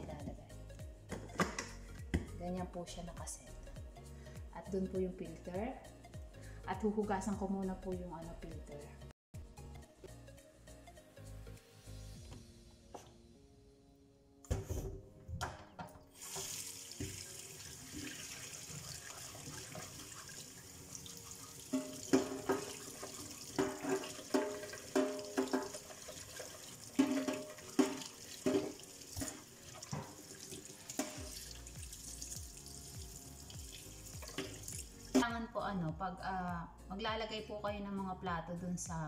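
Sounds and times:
tap running into metal sink: 0:16.2 - 0:17.3, 0:21.7 - 0:31.6, 0:34.2 - 0:34.8
sponge scrubbing filter: 0:16.2 - 0:31.7.

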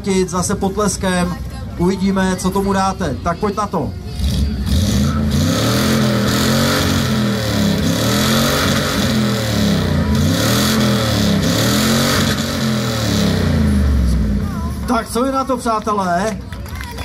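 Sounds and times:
pickup engine revving: 0:04.1 - 0:14.7.

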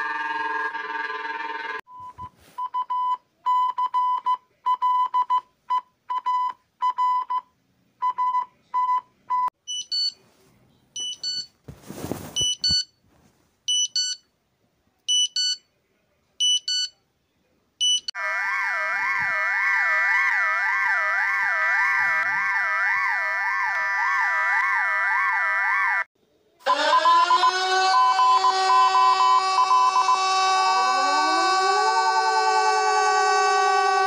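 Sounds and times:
short alarm beeps: 0:08.0 - 0:10.2, 0:11.0 - 0:11.5, 0:12.4 - 0:12.9, 0:13.7 - 0:14.2, 0:17.8 - 0:18.1.

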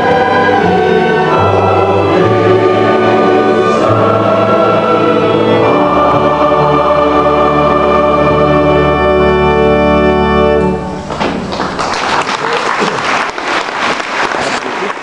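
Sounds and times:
choir singing sustained chords: 0:00.0 - 0:11.0
string orchestra chords: 0:00.0 - 0:11.5.

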